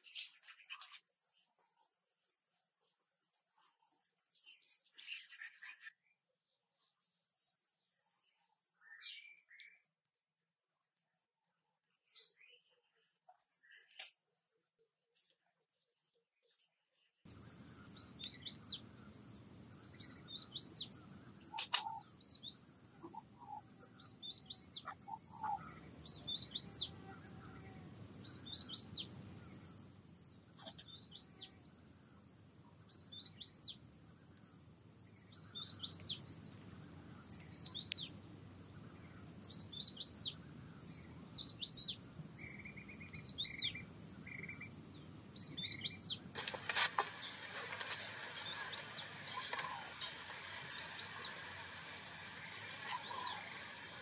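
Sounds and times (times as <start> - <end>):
birds chirping: 17.3 - 54.0
steady high hiss: 34.7 - 54.0.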